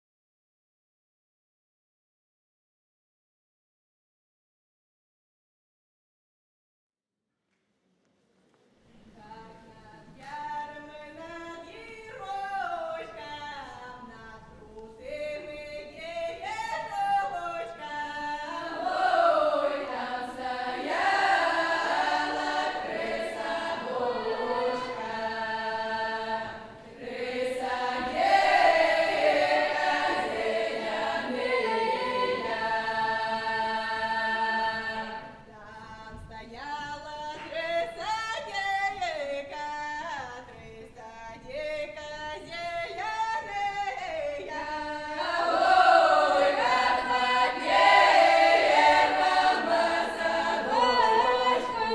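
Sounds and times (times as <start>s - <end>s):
lone woman singing: 9.1s - 18.6s, 35.5s - 45.2s
women's choir singing a cappella: 9.1s - 40.4s, 41.0s - 51.9s.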